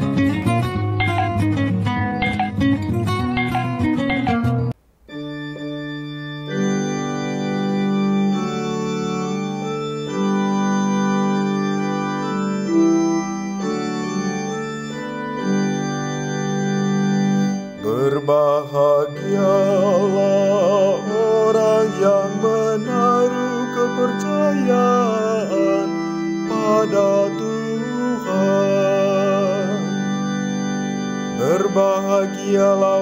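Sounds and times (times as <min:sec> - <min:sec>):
organ playing held chords: 0:00.0 - 0:33.0
person singing: 0:17.8 - 0:30.2, 0:31.4 - 0:33.0.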